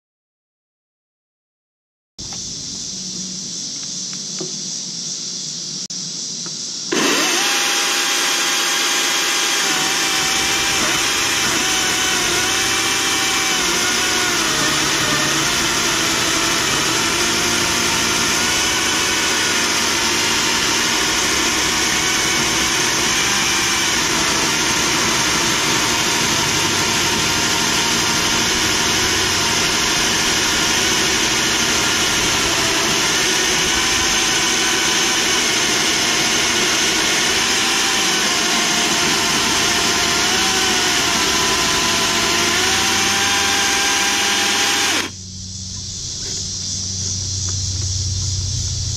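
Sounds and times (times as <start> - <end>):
electric chainsaw cutting log: 6.9 - 45.2.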